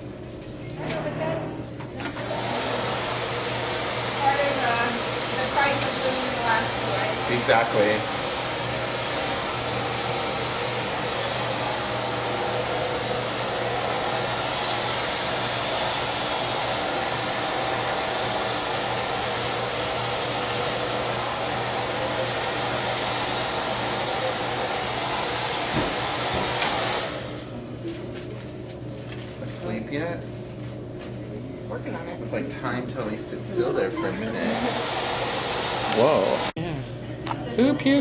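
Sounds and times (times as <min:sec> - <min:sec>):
hair dryer blowing: 0:02.0 - 0:27.5, 0:33.0 - 0:36.6.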